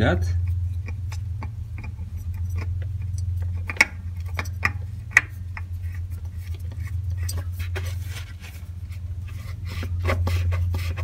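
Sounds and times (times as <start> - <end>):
steady low hum: 0.0 - 11.0
oil filter clicks and taps: 0.4 - 7.4.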